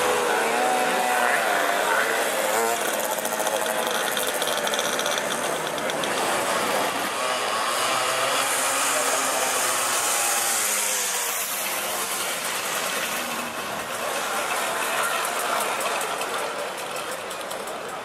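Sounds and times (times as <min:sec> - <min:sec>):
moped engines passing by: 0:00.0 - 0:18.0.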